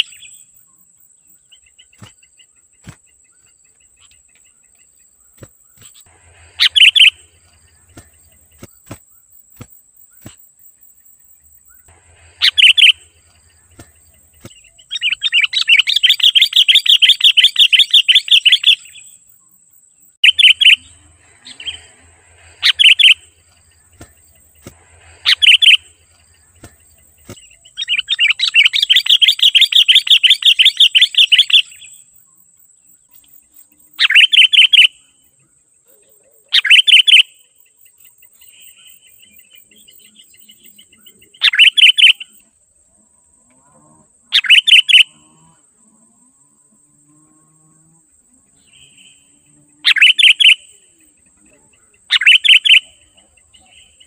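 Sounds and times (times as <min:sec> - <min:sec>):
bulbul calling rapid notes: 0:06.0 - 0:09.0, 0:12.1 - 0:17.9, 0:20.2 - 0:30.8.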